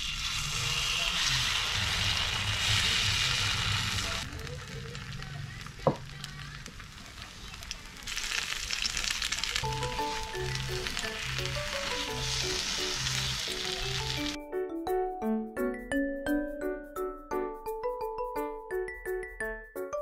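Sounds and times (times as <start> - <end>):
batter sizzling on hot grill plate: 0.0 - 14.4.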